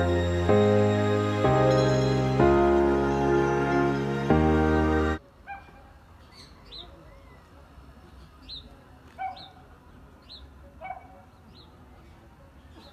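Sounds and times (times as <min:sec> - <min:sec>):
small birds chirping: 0:06.1 - 0:12.9.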